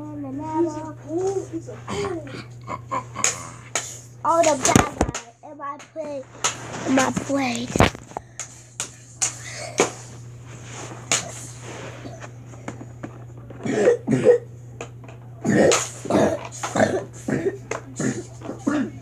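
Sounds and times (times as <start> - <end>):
steady low hum: 0.0 - 19.0
child coughing noises: 1.8 - 4.1, 13.6 - 14.5, 15.4 - 19.0.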